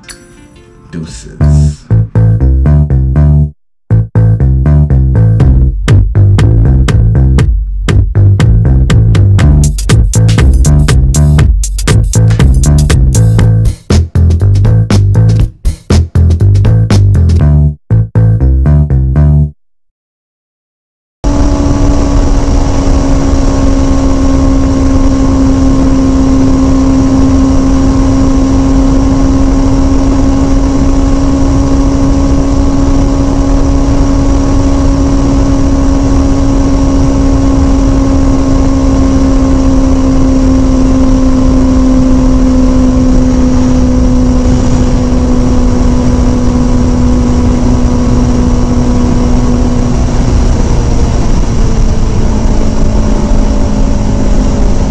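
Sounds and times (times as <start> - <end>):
motorcycle engine at high revs: 21.2 - 54.9
wind rush: 43.2 - 54.9.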